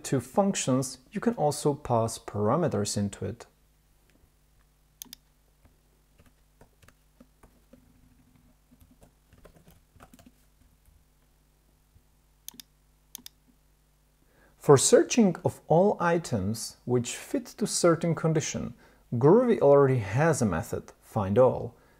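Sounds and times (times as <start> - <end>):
faint keyboard typing: 4.1 - 11.3
mouse clicks: 5.0 - 5.3, 12.5 - 13.4.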